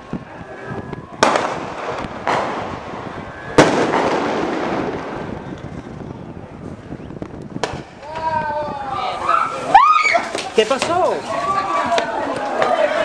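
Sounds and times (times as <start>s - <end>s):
sharp bangs with echo: 1.2s - 2.9s, 3.6s - 5.3s.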